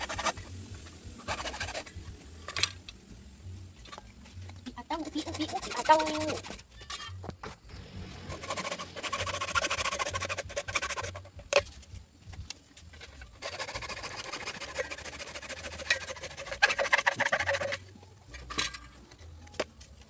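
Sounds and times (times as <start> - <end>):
hacksaw cutting plastic pipe: 0.0 - 0.4, 8.2 - 11.7, 12.9 - 18.8.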